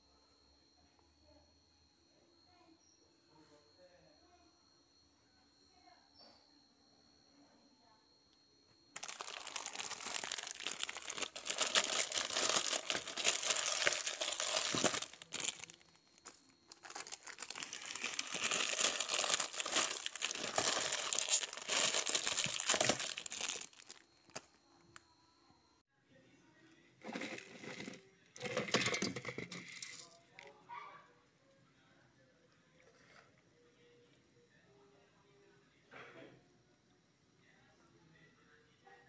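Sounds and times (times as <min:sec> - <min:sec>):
plastic wrappers crinkling: 0:09.0 - 0:24.6, 0:27.1 - 0:30.1.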